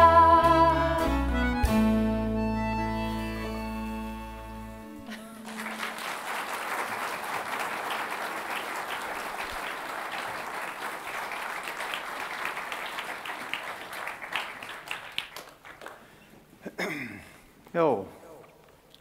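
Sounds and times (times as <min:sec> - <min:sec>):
audience applauding: 0:05.1 - 0:16.3.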